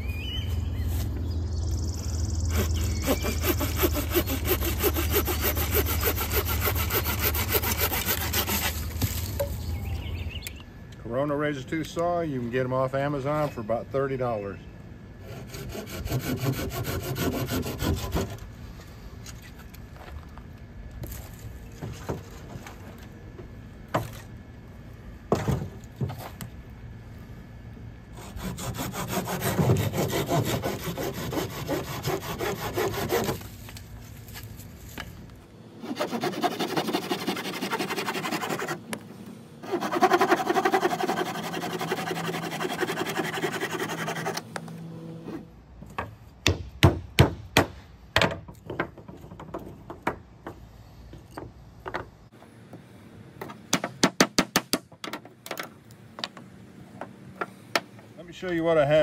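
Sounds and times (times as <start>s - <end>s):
hand saw cutting branch: 2.5s - 9.4s, 15.2s - 18.4s, 28.2s - 33.8s, 35.8s - 38.8s, 39.6s - 44.5s.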